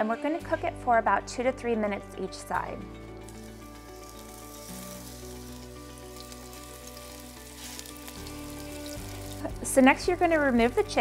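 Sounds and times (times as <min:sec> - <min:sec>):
chicken sizzling in a pan: 0:03.2 - 0:11.0.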